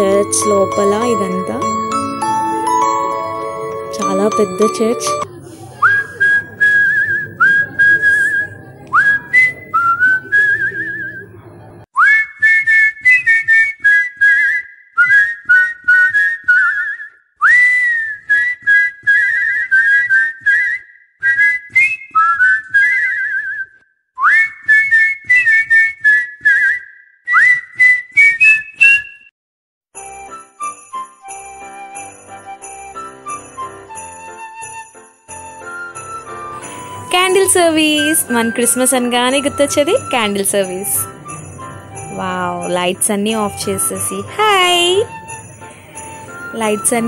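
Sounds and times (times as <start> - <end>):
low murmur: 5.3 - 11.9
shrill whistling calls with trill: 5.8 - 11.3, 12.0 - 29.3.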